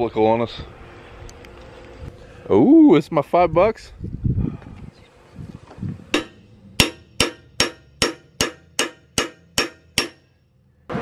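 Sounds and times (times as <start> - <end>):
hammer striking metal: 6.1 - 10.4.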